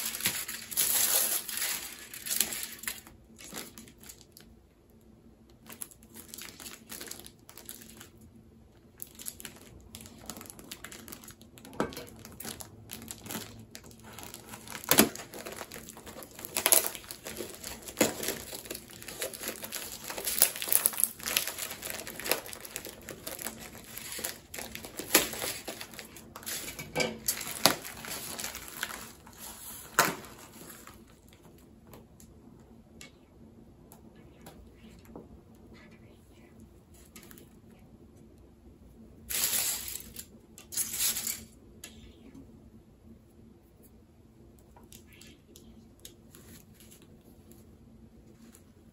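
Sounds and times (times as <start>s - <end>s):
packaging crinkling and crackling: 0.0s - 4.6s, 5.5s - 31.6s, 39.2s - 41.5s.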